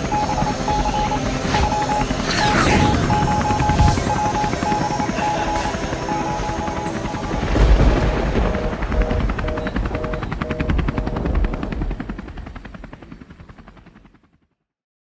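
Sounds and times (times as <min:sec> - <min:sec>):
rapid chopping pulse: 0:00.0 - 0:12.2
short repeated tones: 0:08.4 - 0:11.2.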